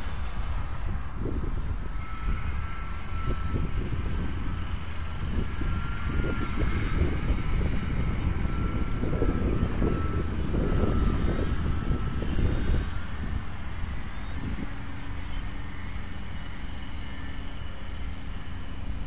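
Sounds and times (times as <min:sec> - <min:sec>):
model plane motor whining: 0:00.0 - 0:19.0
wind buffeting microphone: 0:00.0 - 0:19.0.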